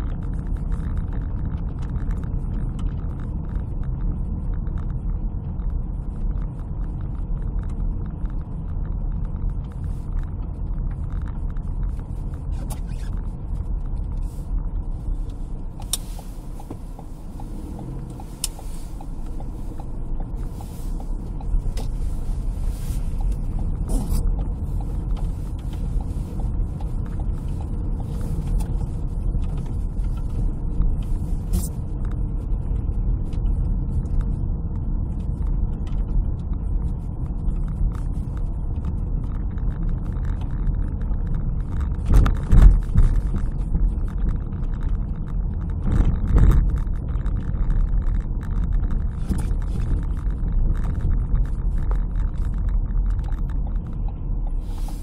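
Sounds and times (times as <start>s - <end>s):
car driving on snow: 0.0s - 55.0s
sharp clicks and knocks: 0.0s - 55.0s.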